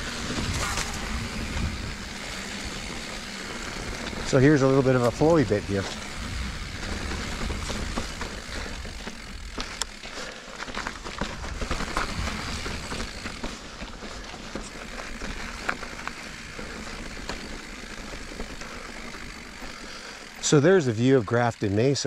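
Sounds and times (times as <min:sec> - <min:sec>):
low rumble: 0:00.0 - 0:04.4
bike rattling and clicking: 0:00.0 - 0:22.0
bike tyres on dirt and rock: 0:00.0 - 0:22.0.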